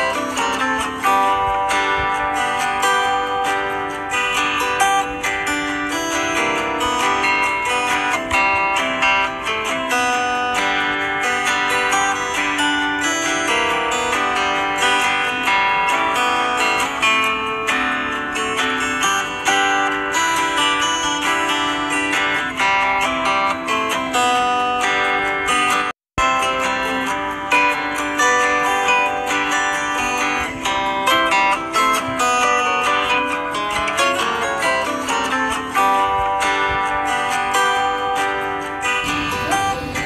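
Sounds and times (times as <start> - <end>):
strummed and plucked guitar music: 0.0 - 40.0.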